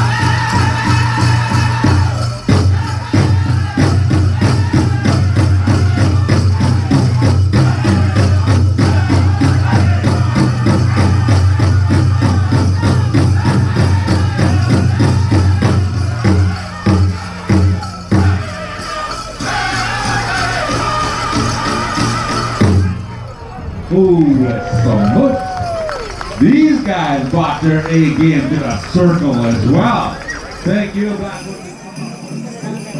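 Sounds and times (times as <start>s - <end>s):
large drum beaten fast: 0.0s - 23.0s
group singing: 0.0s - 23.2s
leg bells jingling: 0.0s - 32.9s.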